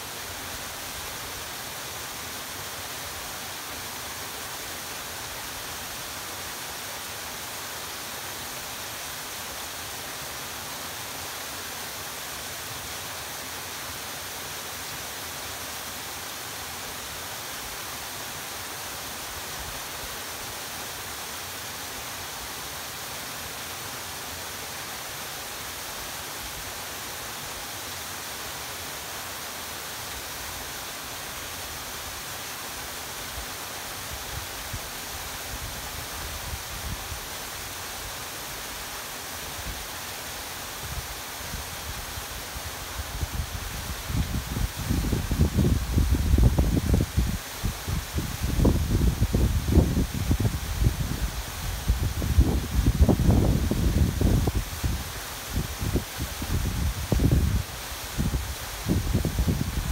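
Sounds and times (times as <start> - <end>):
wind buffeting microphone: 43.2 - 55.0.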